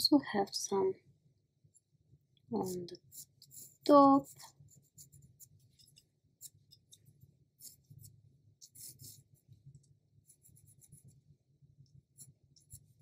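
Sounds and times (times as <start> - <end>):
pencil scratching on paper: 2.5 - 13.0.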